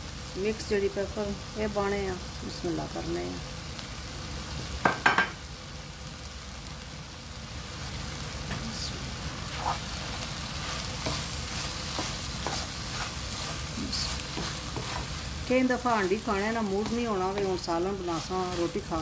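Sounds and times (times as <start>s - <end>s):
vegetables sizzling in a wok: 0.0s - 19.0s
spatula tapping and scraping pan: 10.8s - 15.2s, 16.1s - 18.8s.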